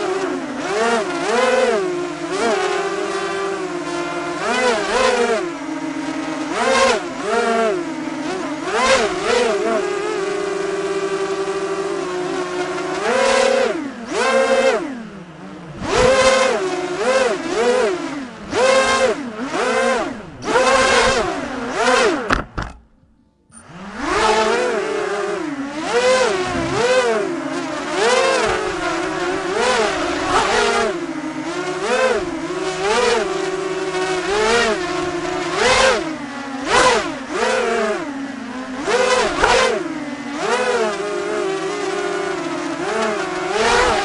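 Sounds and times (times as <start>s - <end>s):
quadcopter motors buzzing: 0.0s - 22.7s, 23.6s - 44.0s.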